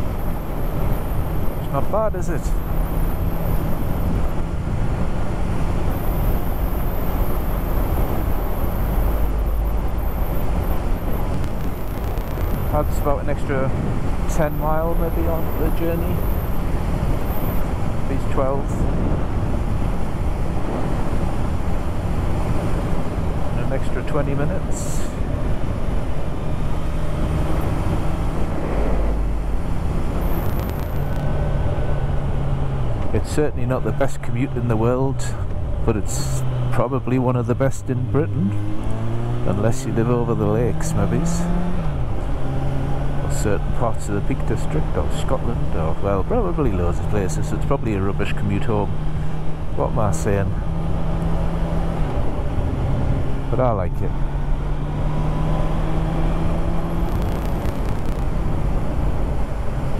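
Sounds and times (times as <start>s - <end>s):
motorcycle engine cruising: 0.0s - 59.9s
motorcycle engine running: 2.6s - 13.5s
wind rush on microphone: 2.6s - 23.7s, 24.5s - 33.2s, 54.3s - 59.9s.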